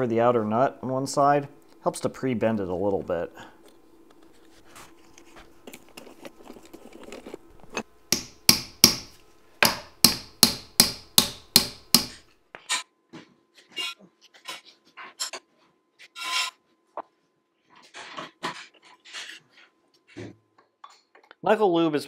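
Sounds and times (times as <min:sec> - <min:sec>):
hammer striking metal: 0:08.1 - 0:12.2.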